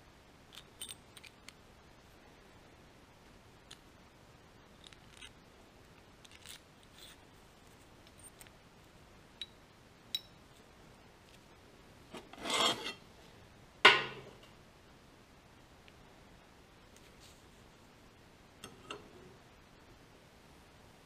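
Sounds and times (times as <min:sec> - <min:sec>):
metallic clicks of washers: 0:00.5 - 0:01.6, 0:09.4 - 0:10.4
metal rubbing scrape: 0:12.1 - 0:13.0.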